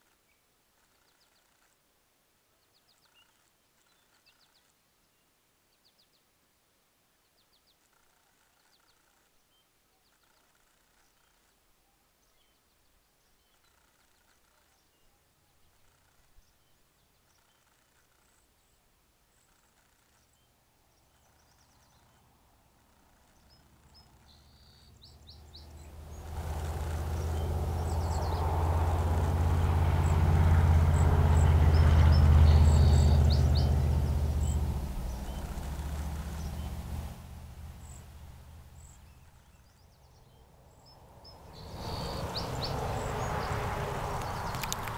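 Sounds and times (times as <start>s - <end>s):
small birds chirping: 0.0s - 1.8s, 2.5s - 6.4s, 7.2s - 44.9s
rushing noise: 25.4s - 38.8s, 41.0s - 44.9s
loud low rumble: 25.4s - 39.1s.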